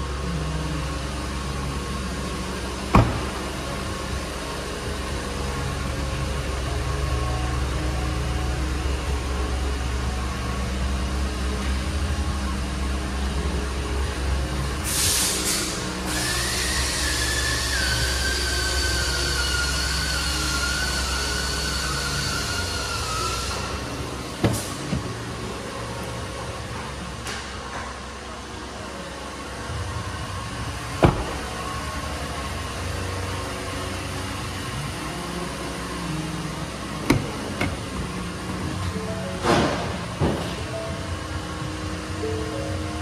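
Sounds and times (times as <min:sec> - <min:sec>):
shop room noise: 0:00.0 - 0:43.0
truck doors unlatching clicks: 0:24.4 - 0:25.3, 0:31.0 - 0:31.5, 0:37.0 - 0:37.9.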